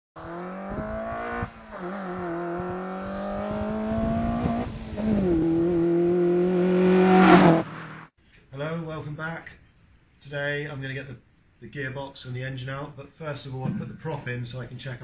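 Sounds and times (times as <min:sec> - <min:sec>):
car engine accelerating: 0:00.2 - 0:08.1.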